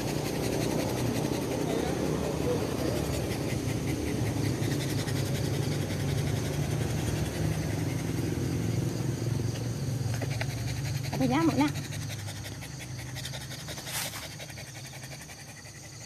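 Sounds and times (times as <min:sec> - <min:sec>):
dog panting: 0:00.0 - 0:16.0.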